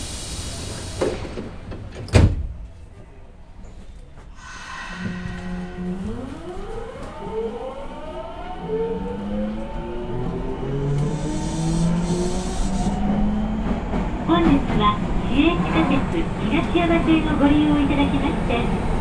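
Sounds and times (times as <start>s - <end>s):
train doors sliding shut: 0.0s - 3.0s
train inverter hum and whine: 2.9s - 13.4s.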